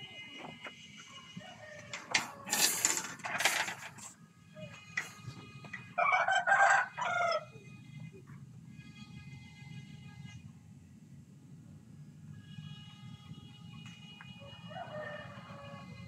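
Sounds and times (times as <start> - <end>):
rooster crowing: 1.0 - 3.4, 5.9 - 7.6, 14.3 - 16.0.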